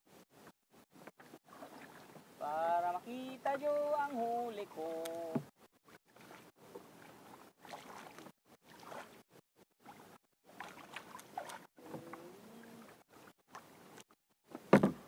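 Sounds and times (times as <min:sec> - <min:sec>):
paddle splashing in water: 0:01.0 - 0:02.4, 0:04.6 - 0:14.0.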